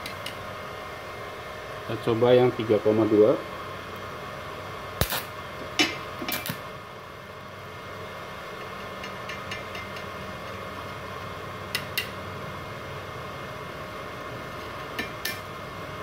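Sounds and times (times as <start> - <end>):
welder cooling fan humming: 0.0 - 16.0.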